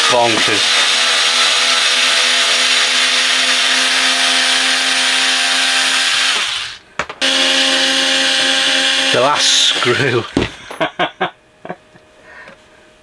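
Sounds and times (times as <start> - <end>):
electric screwdriver running: 0.0 - 10.3.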